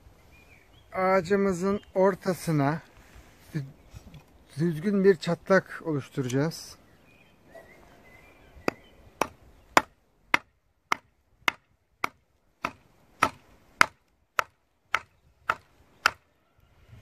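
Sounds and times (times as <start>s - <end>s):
wood striking metal blade: 8.7s - 16.2s.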